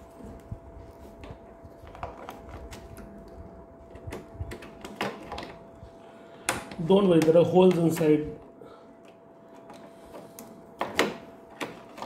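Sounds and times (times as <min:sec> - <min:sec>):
faint steady hum: 0:00.0 - 0:12.0
rustling of wires and connectors: 0:00.0 - 0:12.0.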